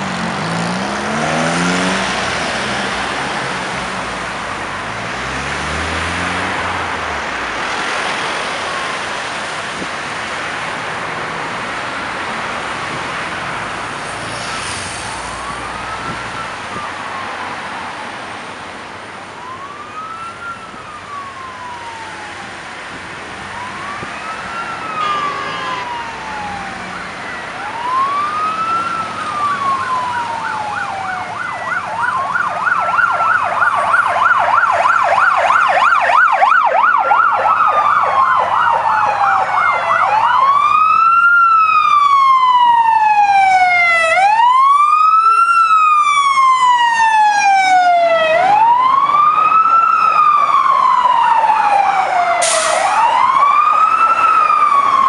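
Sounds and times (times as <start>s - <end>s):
wail siren: 14.2s - 18.6s, 19.2s - 55.0s
yelping siren: 14.4s - 18.2s, 19.4s - 22.7s, 23.5s - 55.0s.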